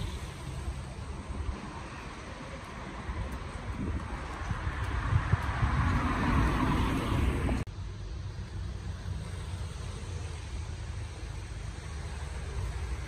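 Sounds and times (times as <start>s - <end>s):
car passing: 0.0s - 13.0s
city background rumble: 0.0s - 13.0s.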